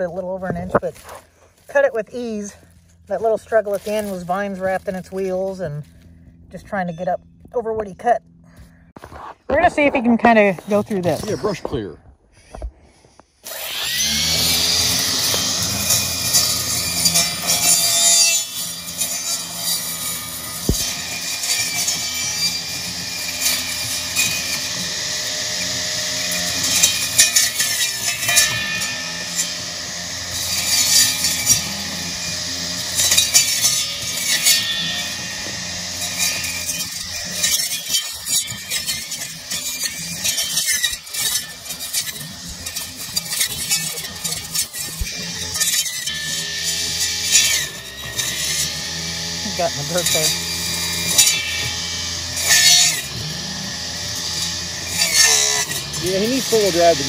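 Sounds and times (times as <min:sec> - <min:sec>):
crackling and snapping brush: 0:00.0 - 0:06.7
saw blade motor hum: 0:00.0 - 0:08.8, 0:13.4 - 0:57.0
blade rasping through stems: 0:00.0 - 0:11.8, 0:12.9 - 0:57.0.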